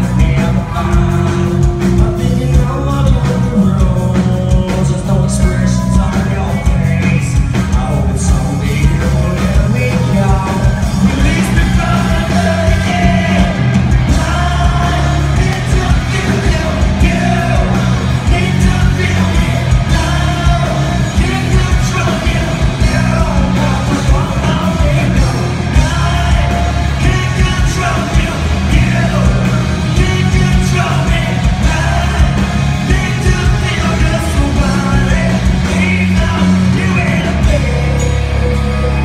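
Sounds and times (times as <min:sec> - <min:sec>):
hard rock band playing: 0:00.0 - 0:39.0.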